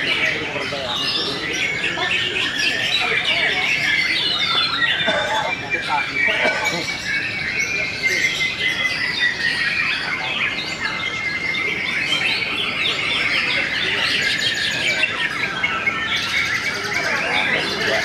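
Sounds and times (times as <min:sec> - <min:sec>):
many birds singing: 0:00.0 - 0:18.0.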